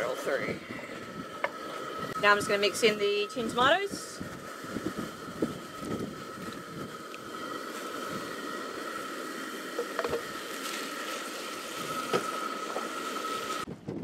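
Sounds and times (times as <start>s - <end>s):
camp stove hiss: 0.0s - 13.7s.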